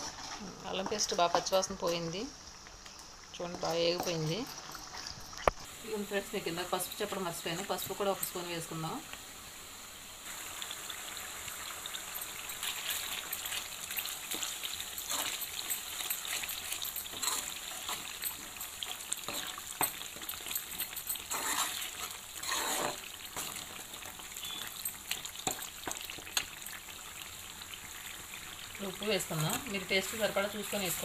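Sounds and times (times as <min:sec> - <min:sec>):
paste sizzling in hot oil: 0:02.6 - 0:31.0
steel spoon stirring: 0:11.9 - 0:26.8.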